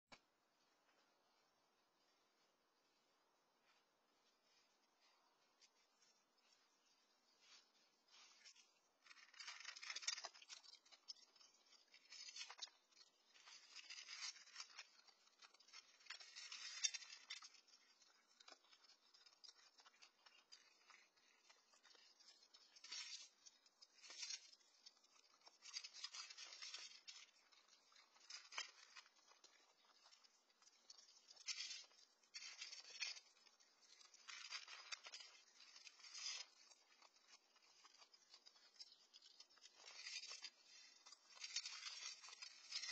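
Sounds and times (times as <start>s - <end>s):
kibble crunching in steel bowl: 9.0s - 42.9s.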